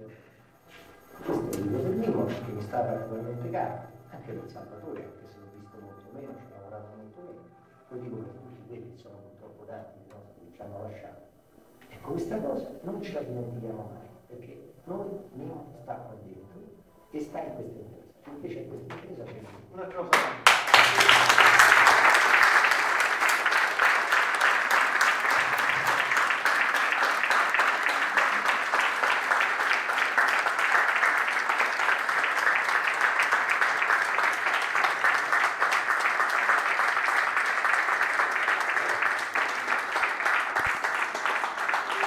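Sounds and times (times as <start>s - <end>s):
audience applauding: 0.0s - 6.5s, 20.1s - 42.0s.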